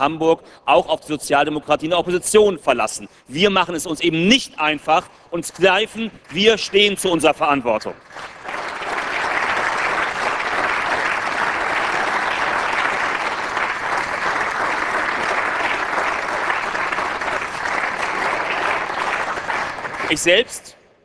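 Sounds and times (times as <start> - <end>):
people applauding: 5.5 - 20.6.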